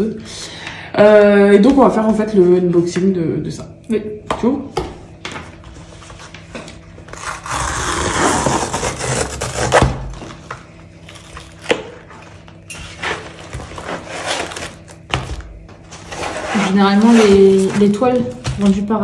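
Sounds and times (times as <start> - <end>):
cardboard package scraping and rustling: 5.8 - 18.6.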